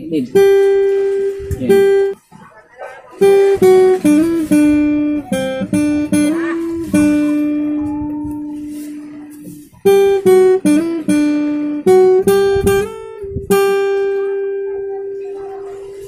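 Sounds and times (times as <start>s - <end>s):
acoustic guitar picking: 0.0s - 16.0s.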